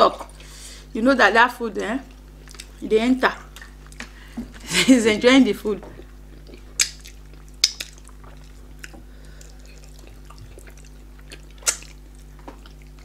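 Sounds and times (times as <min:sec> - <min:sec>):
low steady hum: 0:00.0 - 0:13.0
wet mouth smacking clicks: 0:06.8 - 0:09.0, 0:10.6 - 0:12.6.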